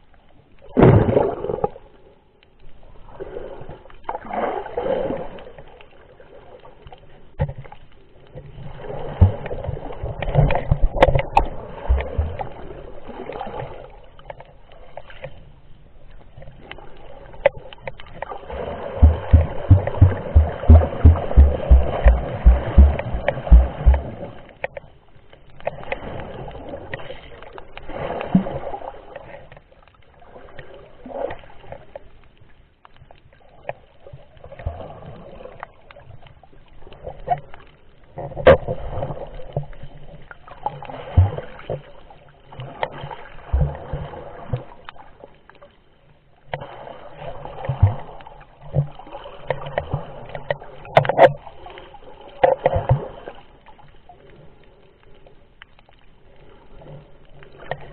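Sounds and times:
muffled underwater sloshing: 2.7 - 57.9
sharp knocks: 19.0 - 24.2.

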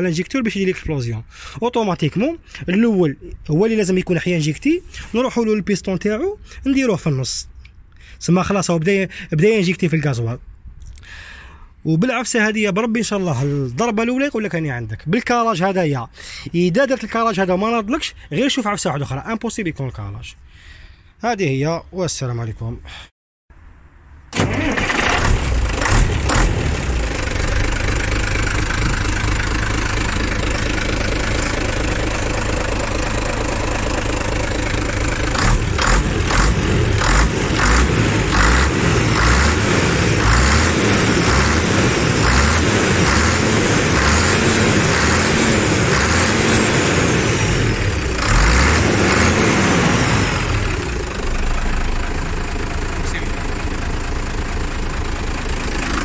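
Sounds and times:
diesel truck engine running: 24.4 - 56.0.

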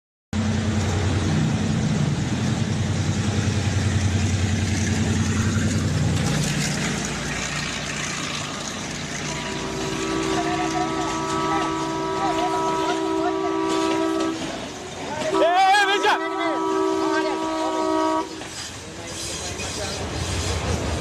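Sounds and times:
diesel locomotive engine drone: 0.4 - 21.0.

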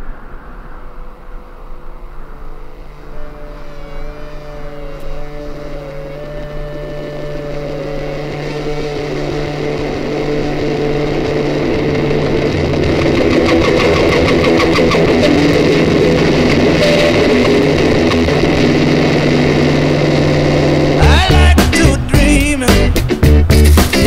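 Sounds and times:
sustained droning chords: 0.0 - 23.5
fast rhythmic beat: 21.0 - 24.0.

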